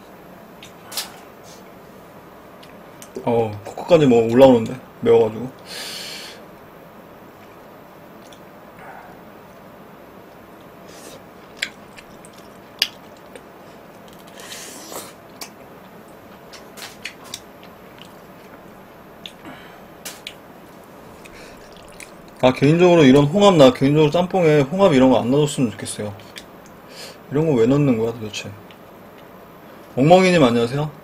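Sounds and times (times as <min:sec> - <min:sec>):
man chewing noodles: 0:10.3 - 0:19.5, 0:20.2 - 0:22.4.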